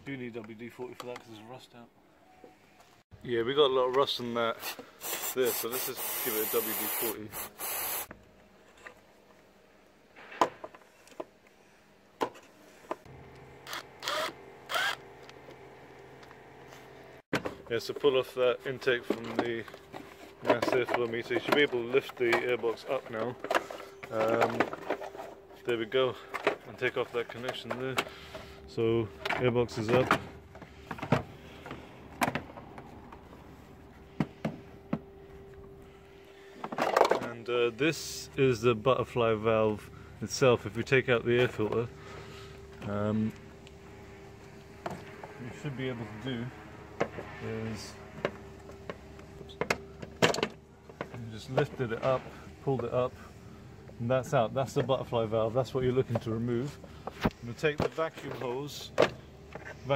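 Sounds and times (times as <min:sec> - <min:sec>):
faint steady hum: 0:08.1 - 0:59.9
cordless power driver running: 0:13.1 - 0:16.4
plastic parts clicking and knocking: 0:49.6 - 0:51.8.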